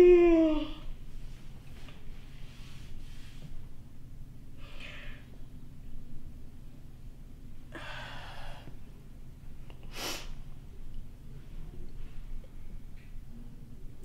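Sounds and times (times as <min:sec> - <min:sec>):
woman breathing and sighing: 0:07.7 - 0:08.8.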